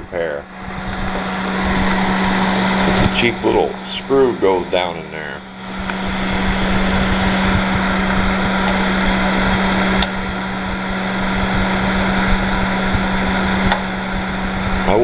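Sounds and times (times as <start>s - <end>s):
fan heater humming: 0.0s - 15.0s
fan switch click: 5.8s - 6.1s, 9.9s - 10.2s, 13.6s - 13.9s.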